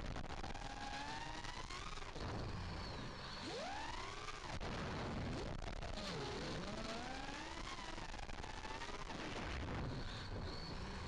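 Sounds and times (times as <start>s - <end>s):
quadcopter motors whining: 9.2s - 11.0s.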